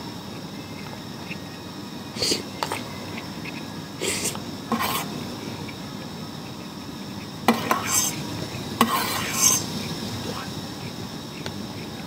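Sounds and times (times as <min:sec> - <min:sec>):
spoon scraping plastic box: 0:04.7 - 0:05.1, 0:07.5 - 0:08.2, 0:08.8 - 0:09.7.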